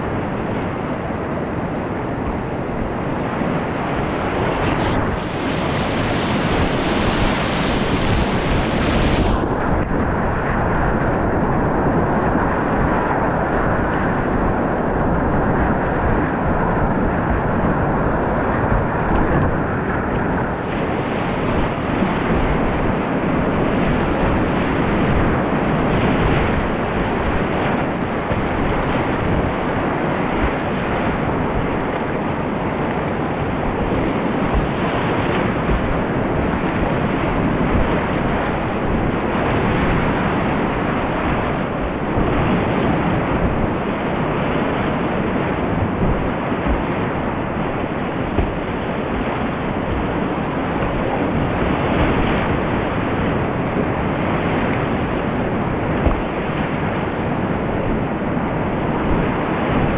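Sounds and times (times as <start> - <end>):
whitewater river rushing: 3.9 - 9.8, 26.2 - 59.9.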